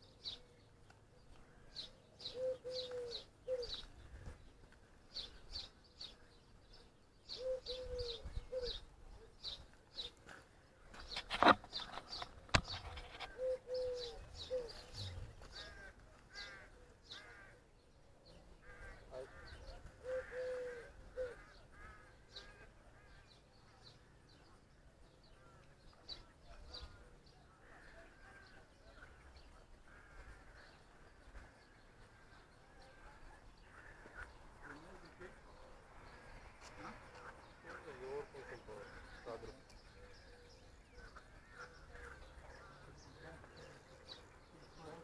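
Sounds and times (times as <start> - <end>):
crow-like caws: 15.5 - 17.6, 18.6 - 23.2, 29.8 - 32.8, 33.6 - 34.6.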